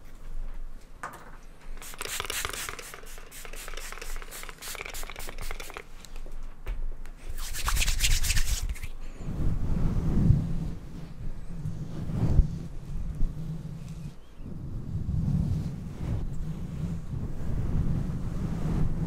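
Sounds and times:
scratching on microphone cover: 0:01.8 - 0:06.2, 0:07.2 - 0:09.0.

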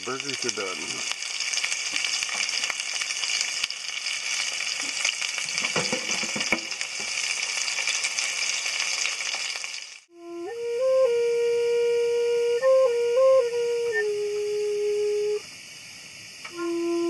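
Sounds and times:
burgers sizzling in a skillet: 0:00.0 - 0:10.1.

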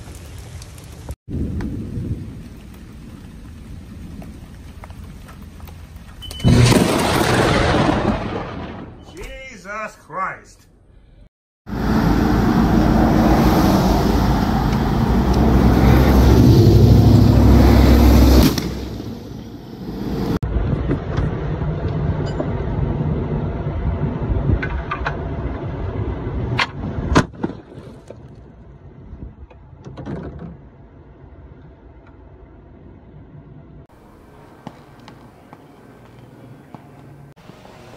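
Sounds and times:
sharp cracks: 0:06.5 - 0:09.3
road traffic: 0:10.8 - 0:27.3, 0:30.5 - 0:37.9.

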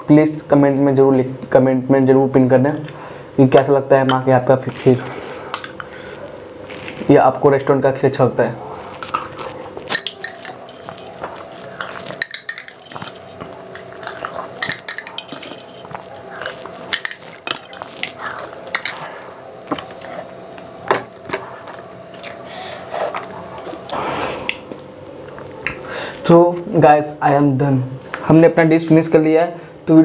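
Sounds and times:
spoon scraping a glass bowl: 0:09.2 - 0:19.1.

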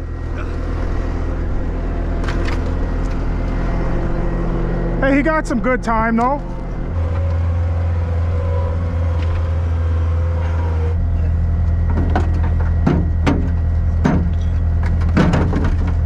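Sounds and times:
skid-steer loader engine running: 0:00.0 - 0:16.0
concrete chunks knocking and dropping: 0:11.9 - 0:16.0.

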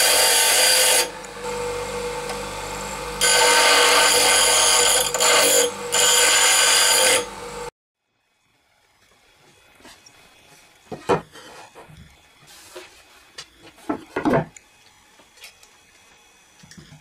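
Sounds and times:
wooden boards knocking on workbench: 0:10.9 - 0:11.3, 0:13.8 - 0:14.5.

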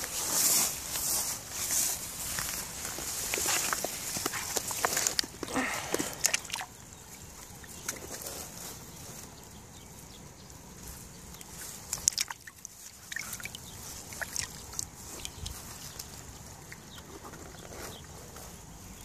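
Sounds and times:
fish splashing in plastic tub: 0:02.1 - 0:08.4, 0:11.6 - 0:17.0
short splashes and knocks: 0:03.2 - 0:06.8, 0:11.9 - 0:16.0.

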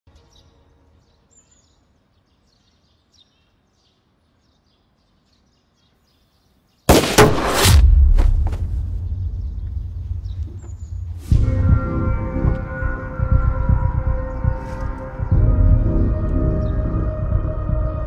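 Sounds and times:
loud blast: 0:06.9 - 0:13.0
deep lingering rumble: 0:07.3 - 0:18.0.

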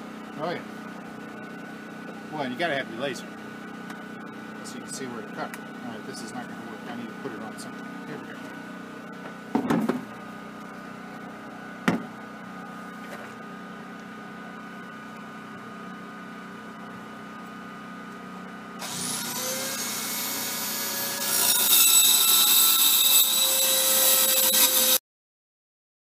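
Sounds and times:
circular saw whine: 0:00.0 - 0:09.2, 0:10.1 - 0:25.0
generator running: 0:00.0 - 0:21.6
single knock: 0:11.8 - 0:12.1
saw blade cutting wood: 0:18.8 - 0:25.0.

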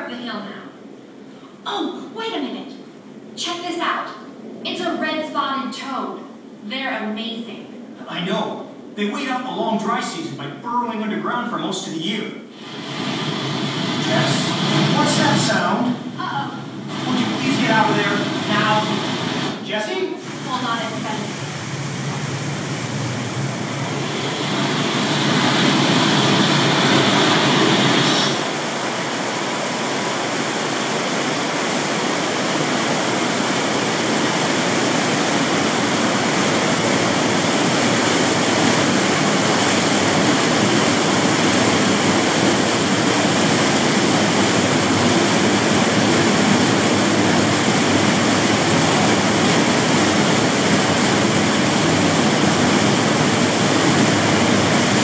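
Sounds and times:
roar of rushing water: 0:12.6 - 0:19.6, 0:20.2 - 0:55.0.

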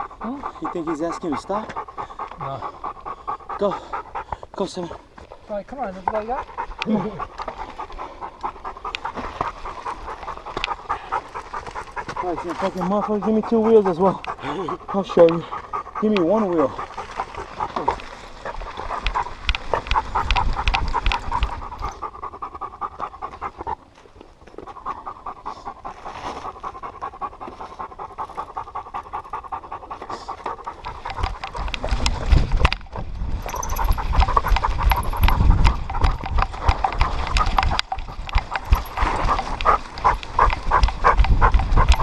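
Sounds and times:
dog panting: 0:00.0 - 0:42.0.

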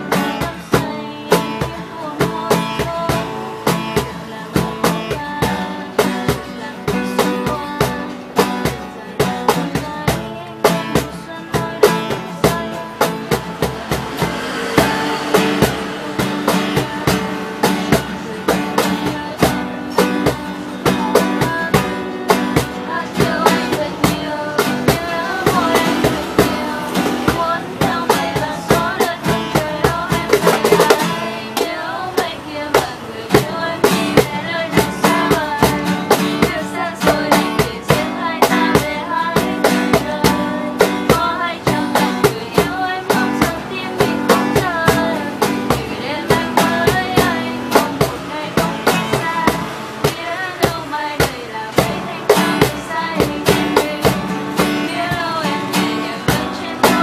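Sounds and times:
acoustic guitar strummed: 0:00.0 - 0:57.0
cajon slapped: 0:00.0 - 0:57.0
voices singing along: 0:00.0 - 0:57.0.

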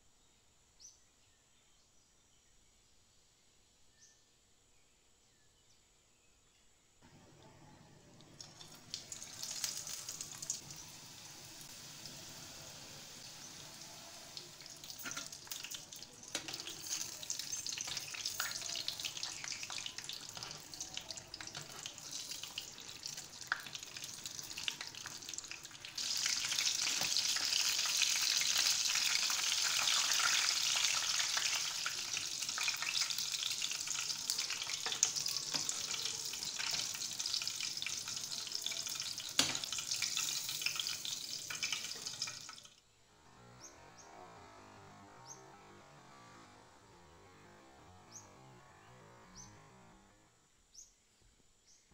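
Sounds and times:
deep-frying in hot oil: 0:08.2 - 0:42.8.

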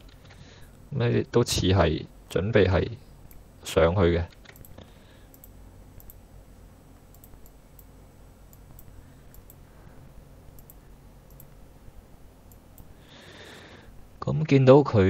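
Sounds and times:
low room hum: 0:00.0 - 0:15.0
faint computer mouse clicks: 0:04.3 - 0:06.2, 0:07.0 - 0:07.9, 0:08.5 - 0:09.6, 0:10.5 - 0:11.6.

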